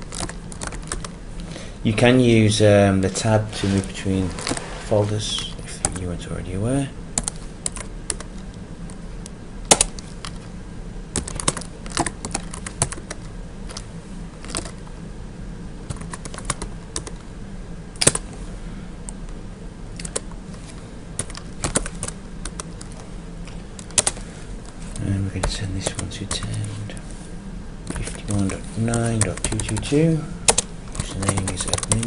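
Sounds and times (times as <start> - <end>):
computer keyboard typing: 0.0 - 1.2, 7.2 - 8.4, 9.7 - 10.0, 11.1 - 13.8, 14.4 - 14.8, 15.9 - 17.2, 18.0 - 18.2, 20.0 - 20.2, 21.2 - 23.0, 23.8 - 24.2, 27.9 - 29.9, 30.5 - 32.0
low steady hum: 0.0 - 32.0.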